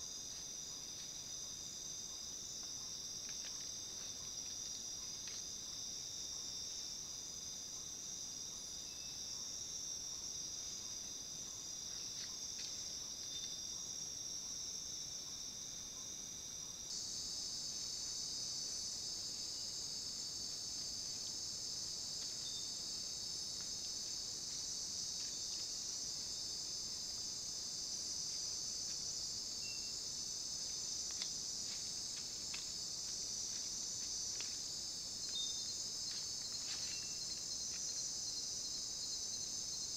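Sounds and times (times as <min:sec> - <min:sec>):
shrill chorus of night insects: 0:00.0 - 0:39.9
faint ticks: 0:31.0 - 0:34.6.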